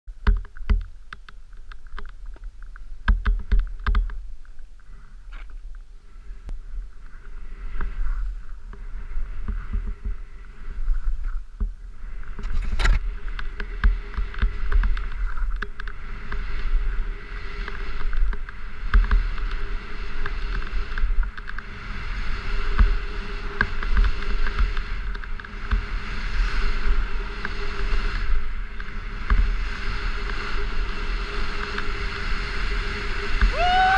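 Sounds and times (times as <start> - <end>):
wind buffeting microphone: 0.1 - 33.9
skis hissing through snow: 6.0 - 33.9.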